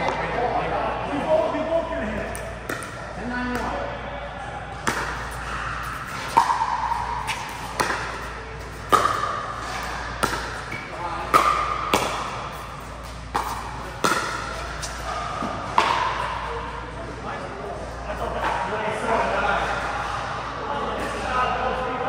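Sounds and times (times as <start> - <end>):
paddles hitting plastic ball: 4.8 - 12.7, 13.3 - 14.9.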